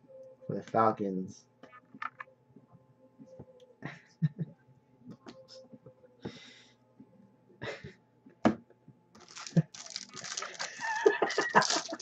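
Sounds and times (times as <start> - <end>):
cards and packaging rustling: 9.2 - 12.0.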